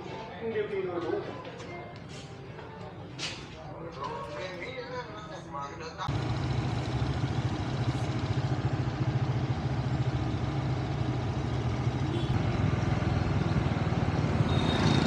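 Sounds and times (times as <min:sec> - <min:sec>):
motorbike engine rumble: 0:06.1 - 0:15.0.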